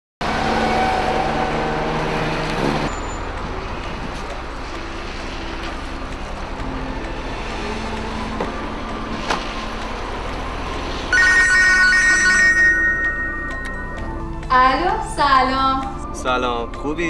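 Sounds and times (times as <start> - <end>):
traffic rumble: 0.2 - 17.0.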